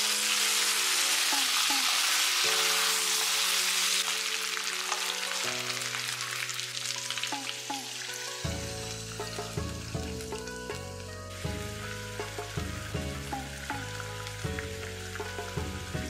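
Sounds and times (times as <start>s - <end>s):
meat sizzling in a wok: 0.0s - 16.0s
soft background music: 0.0s - 16.0s.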